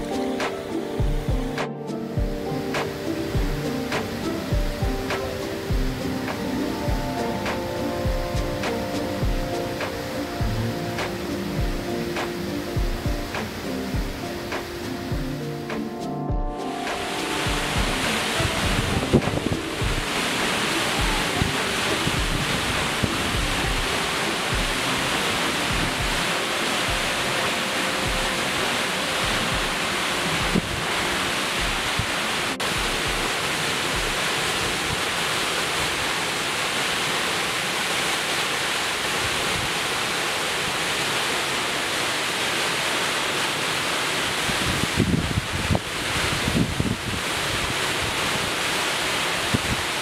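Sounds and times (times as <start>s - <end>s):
faint background music with beat: 0.0s - 34.4s
waterfall rushing: 0.0s - 50.0s.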